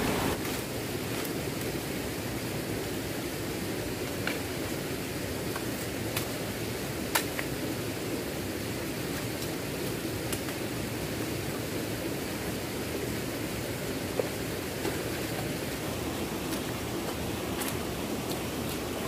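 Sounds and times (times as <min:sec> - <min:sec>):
steady rushing noise: 0:00.0 - 0:01.2, 0:09.8 - 0:19.0.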